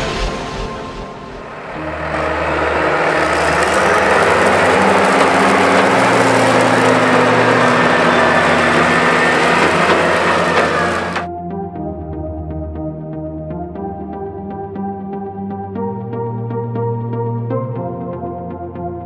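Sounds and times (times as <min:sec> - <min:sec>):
tractor engine under load: 0:01.5 - 0:11.3.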